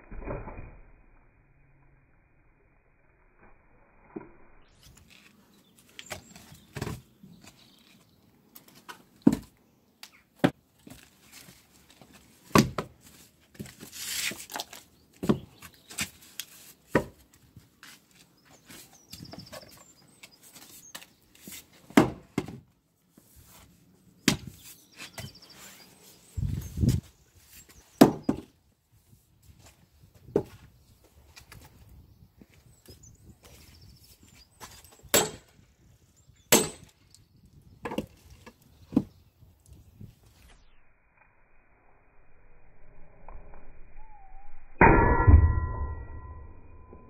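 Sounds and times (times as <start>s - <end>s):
wood scraping: 10.8s - 22.0s
maul striking log: 36.5s - 36.9s.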